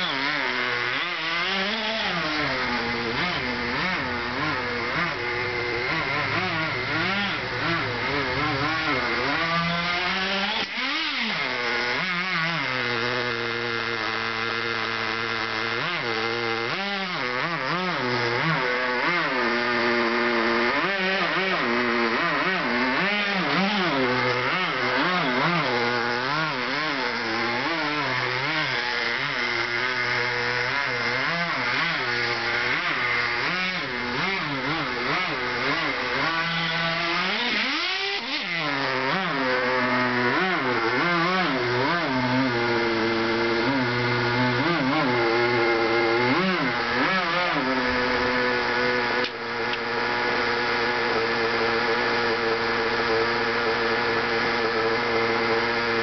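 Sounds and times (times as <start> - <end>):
model car engine revving: 0.0 - 56.0.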